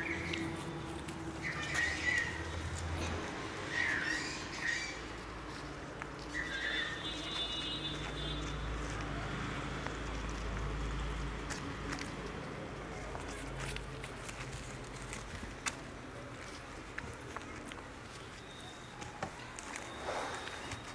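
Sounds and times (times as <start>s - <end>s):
puppies whimpering and yelping: 0.0s - 7.1s, 18.1s - 20.9s.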